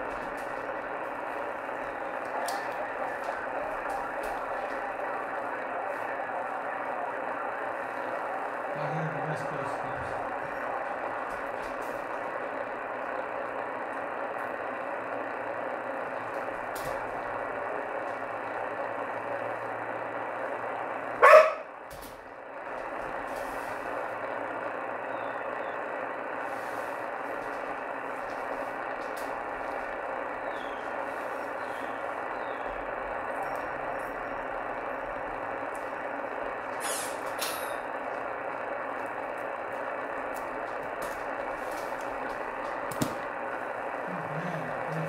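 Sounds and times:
radio band noise hiss: 0.0 - 45.0
sharp loud radio crack: 0.0 - 45.0.

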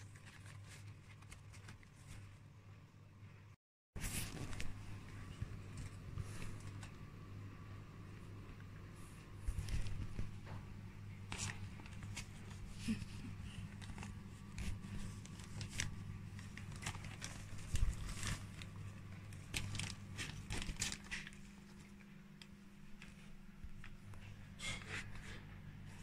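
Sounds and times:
fabric rustling and crinkling: 4.0 - 7.0, 9.4 - 24.3.

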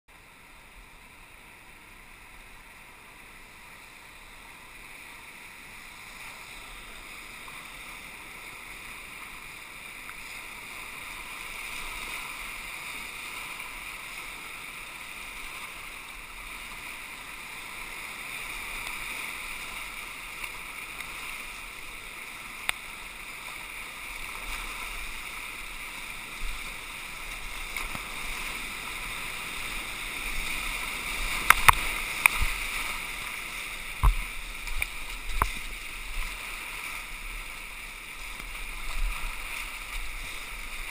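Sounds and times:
rushing whitewater rapids: 0.1 - 40.9.

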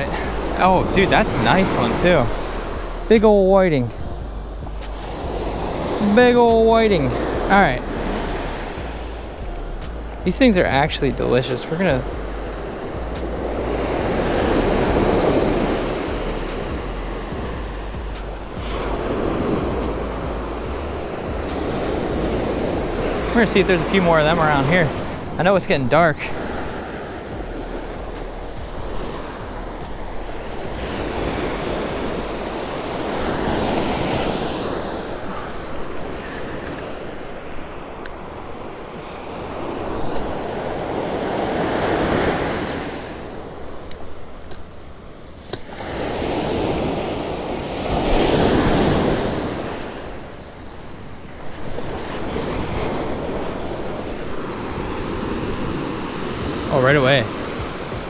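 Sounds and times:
ocean surf breaking on beach: 0.0 - 4.2, 4.8 - 58.0
wind buffeting microphone: 0.0 - 45.7.

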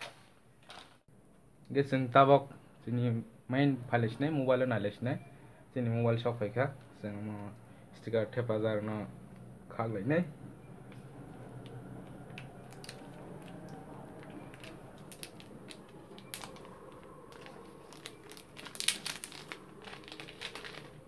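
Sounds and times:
plastic film crinkling: 10.9 - 21.0.

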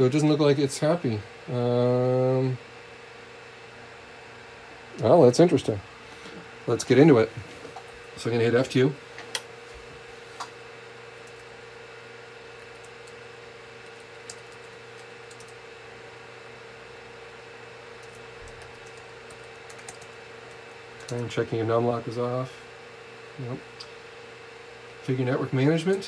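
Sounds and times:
low electrical hum: 0.0 - 26.0
keyboard keys clicking: 18.0 - 20.1.

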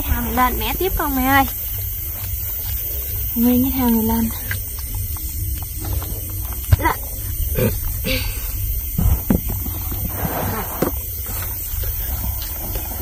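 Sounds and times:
steady low hum: 0.0 - 13.0
person grunting with effort: 6.7 - 8.6
knocks and thumps: 8.9 - 11.6.

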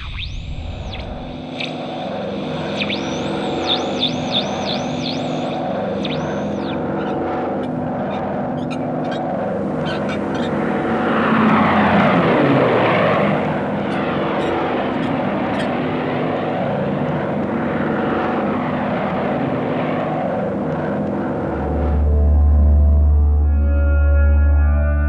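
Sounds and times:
propeller aircraft engines droning: 0.0 - 24.9.

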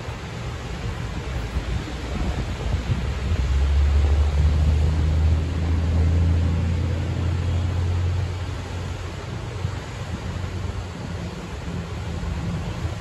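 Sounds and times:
vehicle engine passing by: 3.4 - 8.4.

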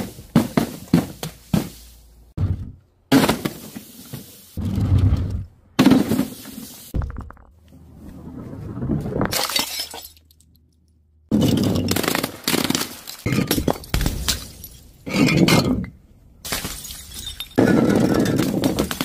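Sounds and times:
glass bottles smashing on tiles: 9.3 - 10.4, 16.5 - 19.0.

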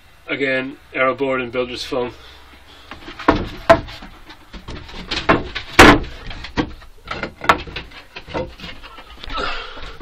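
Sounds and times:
irregular knocks and bumps: 2.9 - 10.0.

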